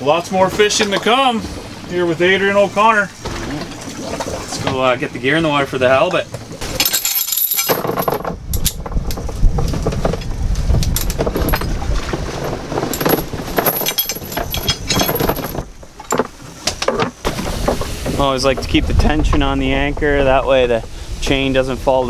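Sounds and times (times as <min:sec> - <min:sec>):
anchor chain rattling: 0:06.6 - 0:17.2.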